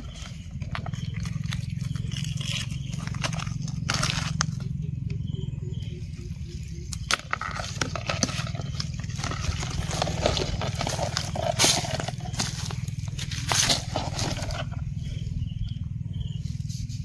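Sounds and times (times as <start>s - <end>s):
footsteps on dry leaves: 0.0s - 4.8s, 7.6s - 14.8s.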